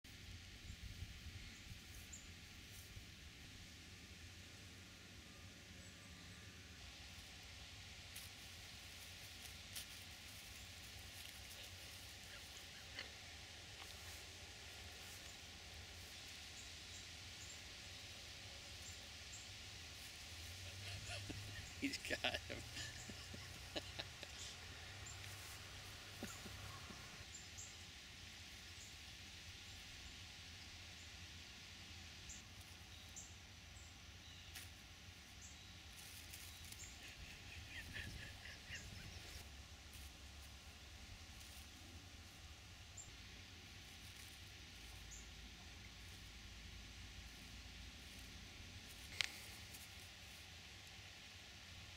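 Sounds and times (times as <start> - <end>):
faint steady hiss: 0.1 - 51.9
soft ticks and rustles: 0.9 - 3.4, 7.1 - 17.7, 18.8 - 27.4, 34.4 - 37.9, 39.2 - 51.4.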